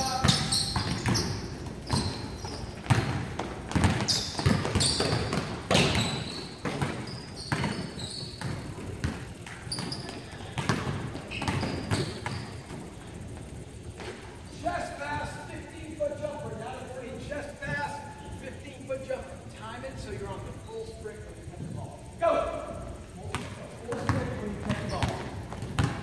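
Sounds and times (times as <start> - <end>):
basketballs bouncing on wood floor: 0.0 - 14.2, 23.2 - 26.0
sneakers squeaking: 0.0 - 26.0.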